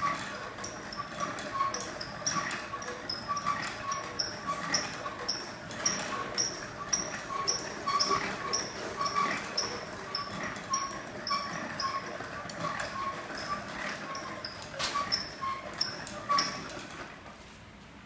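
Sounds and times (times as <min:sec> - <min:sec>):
wooden reeling frame squeaking: 0:00.0 - 0:17.2.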